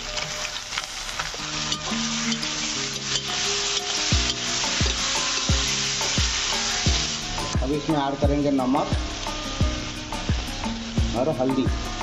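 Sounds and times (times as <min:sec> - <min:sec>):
metal spatula scraping wok: 0:00.0 - 0:07.6
chicken sizzling in hot oil: 0:00.0 - 0:12.0
low thumping beat: 0:04.1 - 0:12.0.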